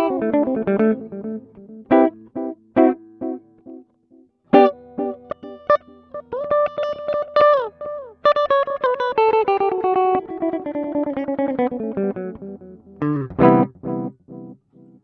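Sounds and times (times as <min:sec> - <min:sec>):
electric guitar notes with echo: 0:00.0 - 0:03.8, 0:04.5 - 0:14.6.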